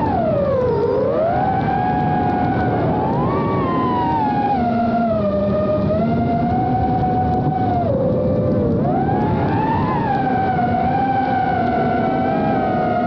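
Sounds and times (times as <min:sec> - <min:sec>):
quadcopter propellers whining: 0:00.0 - 0:13.0.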